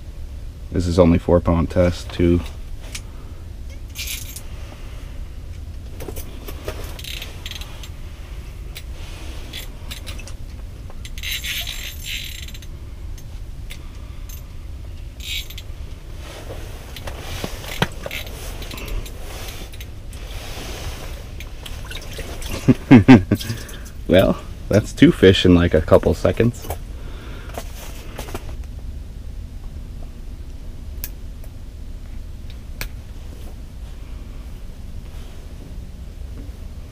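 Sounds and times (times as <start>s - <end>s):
low rumble: 0.0s - 36.9s
fishing reel drag ratcheting: 11.1s - 12.7s, 15.2s - 15.6s.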